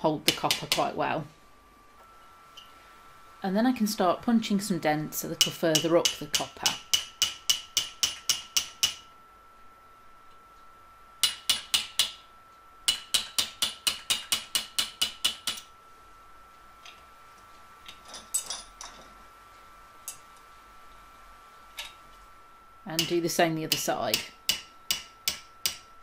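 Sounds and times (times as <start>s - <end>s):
hammer tapping metal punch: 5.4s - 9.1s, 11.2s - 12.3s, 12.9s - 15.7s, 23.0s - 25.9s.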